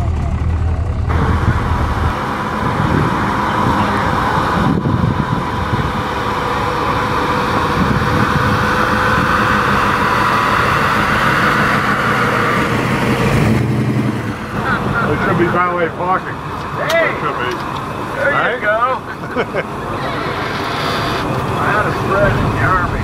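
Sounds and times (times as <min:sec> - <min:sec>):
car engine driving past: 0:00.0 - 0:15.6.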